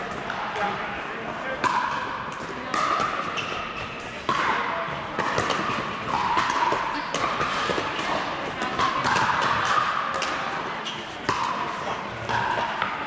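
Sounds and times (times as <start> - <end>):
paddles hitting plastic ball: 4.2 - 10.5.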